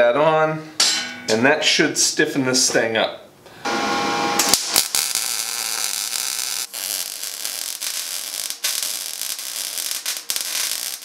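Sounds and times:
welding arc crackling: 3.7 - 11.0.

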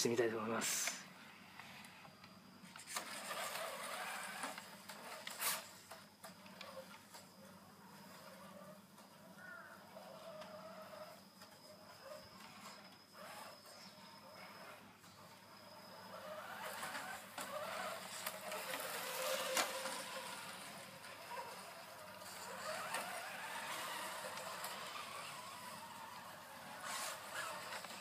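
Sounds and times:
toy car electric motor whining: 0.7 - 28.0.

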